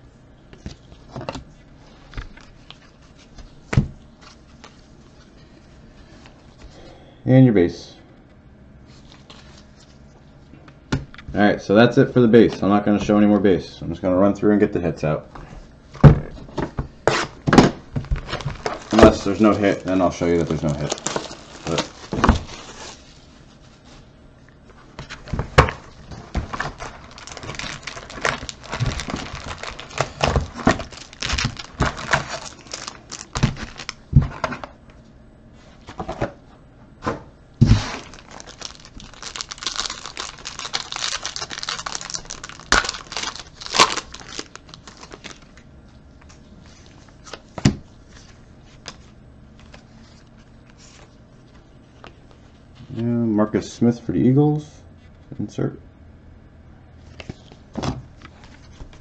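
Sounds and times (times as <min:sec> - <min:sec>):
wrapper crinkling and tearing: 0:18.0 - 0:23.1, 0:25.8 - 0:34.0, 0:37.7 - 0:45.6
cards rustling: 0:18.0 - 0:23.2, 0:25.0 - 0:34.6, 0:37.8 - 0:45.6.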